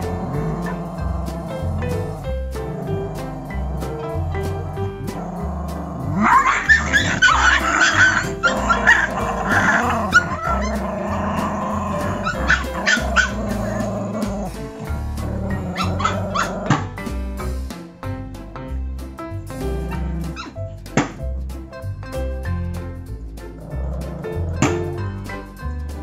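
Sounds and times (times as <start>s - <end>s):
puppies barking and yipping: 0.0s - 17.0s, 19.6s - 21.2s
background music with bass line: 0.0s - 26.0s.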